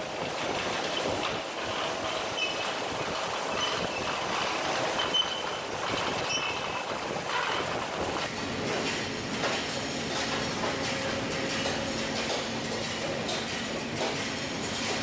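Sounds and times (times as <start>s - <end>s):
high metallic squeals: 5.0s - 7.6s.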